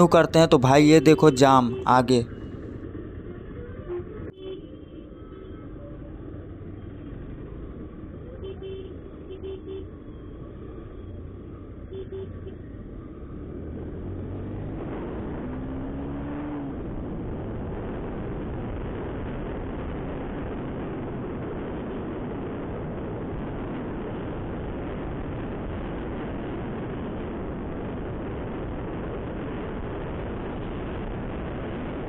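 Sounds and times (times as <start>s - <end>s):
wind noise on microphone: 14.6s - 32.0s.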